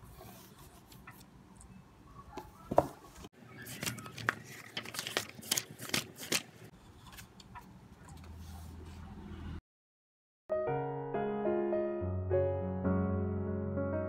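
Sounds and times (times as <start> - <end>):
book pages flipping: 2.7 - 8.8.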